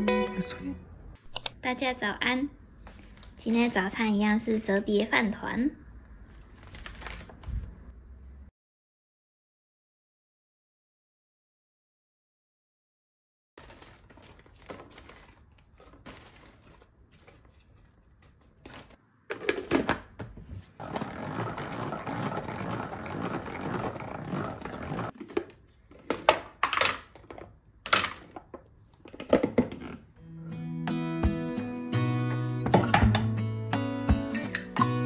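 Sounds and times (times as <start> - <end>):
sharp plastic clacks: 1.2 - 1.6
plastic bag crinkling: 13.6 - 19.0
salad spinner whirring: 20.8 - 25.1.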